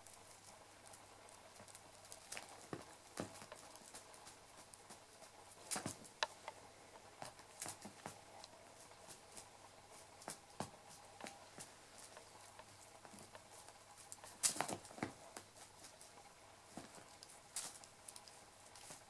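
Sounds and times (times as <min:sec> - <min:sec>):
kitten paws scuffing on sofa: 0:01.6 - 0:06.2, 0:08.8 - 0:19.0.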